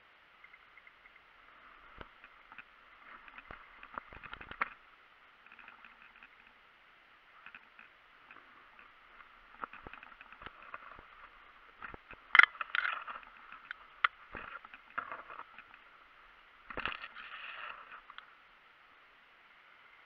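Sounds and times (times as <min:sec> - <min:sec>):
dry grass rustling and crackling: 0:01.1 - 0:18.5
gear clicking against stems: 0:01.7 - 0:04.8, 0:07.4 - 0:15.9.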